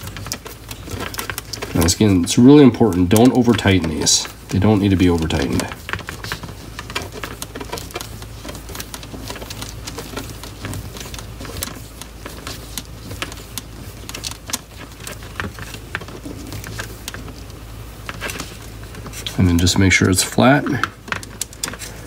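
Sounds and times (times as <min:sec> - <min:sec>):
plastic parts clicking and tapping: 0:00.0 - 0:22.0
steady low hum: 0:00.0 - 0:22.0.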